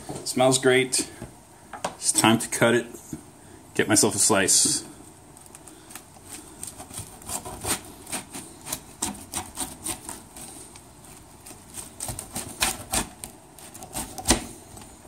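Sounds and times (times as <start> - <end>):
pizza cutter through crust: 6.3 - 14.9.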